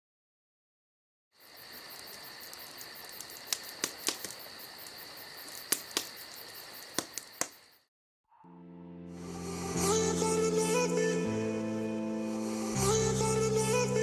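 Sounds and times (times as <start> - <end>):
crickets chirping: 1.4 - 7.9
sharp clicks: 2.1 - 4.5, 5.4 - 7.6.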